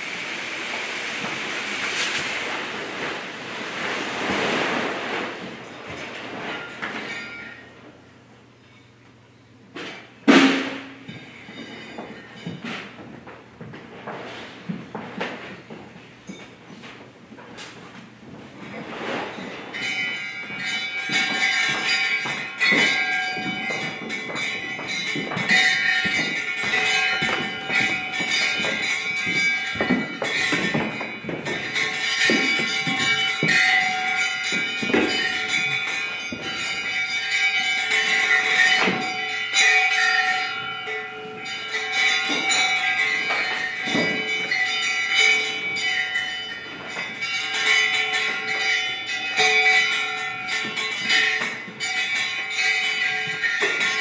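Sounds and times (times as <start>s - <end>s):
percussion knocks and clanks: 0.0s - 54.0s
ringing bells: 5.6s - 9.5s, 10.8s - 13.2s, 18.7s - 54.0s.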